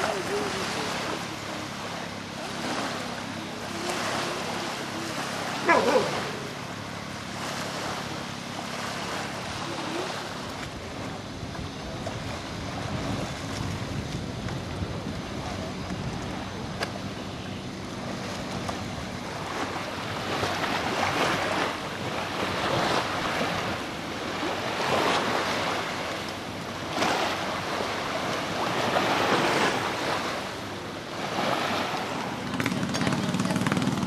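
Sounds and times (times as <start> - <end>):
small waves on sandy beach: 0.0 - 34.0
wind on microphone: 10.5 - 27.6.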